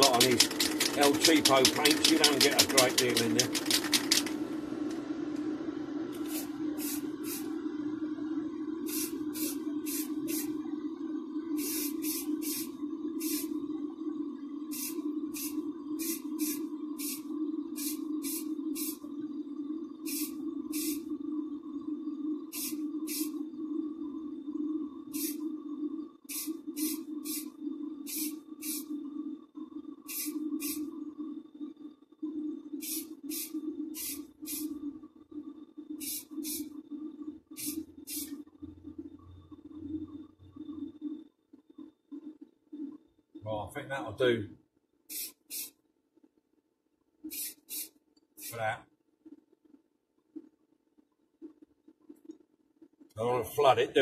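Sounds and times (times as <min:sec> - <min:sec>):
extractor fan humming: 0:00.0 - 0:31.4
aerosol spray hissing: 0:06.1 - 0:07.6, 0:08.8 - 0:10.6, 0:11.6 - 0:13.6, 0:14.7 - 0:19.0, 0:20.0 - 0:21.1, 0:22.5 - 0:23.5, 0:25.1 - 0:25.4, 0:26.3 - 0:28.9, 0:30.0 - 0:30.9, 0:32.8 - 0:34.8, 0:36.0 - 0:36.7, 0:37.5 - 0:38.4, 0:45.1 - 0:45.8, 0:47.2 - 0:48.6.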